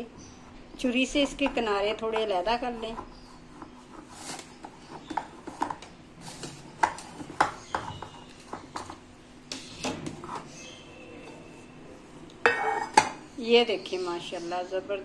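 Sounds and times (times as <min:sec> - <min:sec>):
knife scraping metal cake pan: 0:12.4 - 0:13.1.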